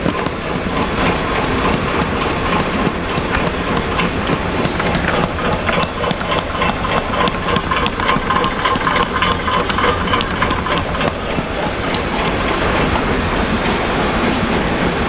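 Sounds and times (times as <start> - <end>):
punches clattering in rapid clicks: 0.0 - 12.9
steady machine hum: 0.0 - 15.0.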